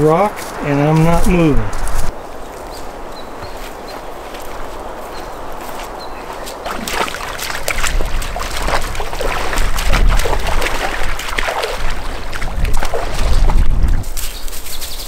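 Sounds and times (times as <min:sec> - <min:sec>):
creek water running over stones: 0:02.2 - 0:14.9
boots splashing through water: 0:03.3 - 0:14.7.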